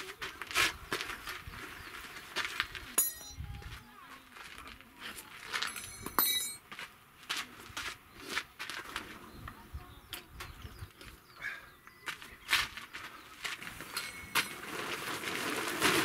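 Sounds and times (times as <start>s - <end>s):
footsteps on gravel: 0.0s - 9.4s, 12.0s - 16.0s
ringing metal clang: 3.0s - 3.6s, 5.6s - 6.6s, 13.9s - 14.6s
hammer on metal tent pegs: 5.7s - 6.6s.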